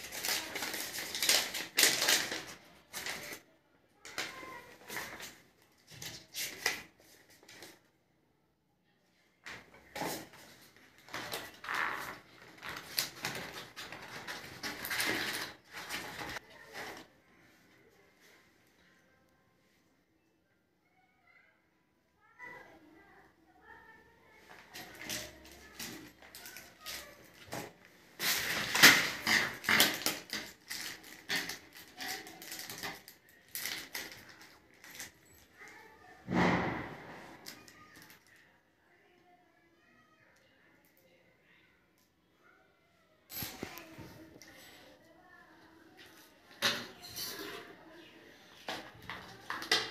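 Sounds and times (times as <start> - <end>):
cardboard packaging rustling: 0.0 - 3.4, 10.0 - 17.1, 24.5 - 35.0
plastic packet crinkling: 0.0 - 3.4.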